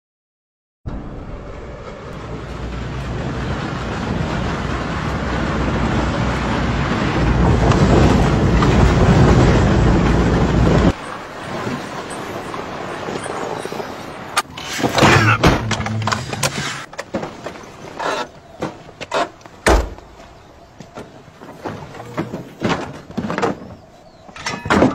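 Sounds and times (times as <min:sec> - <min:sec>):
car driving on dirt: 0:00.9 - 0:24.3
car doors opening and shutting: 0:14.4 - 0:17.2, 0:19.1 - 0:20.1.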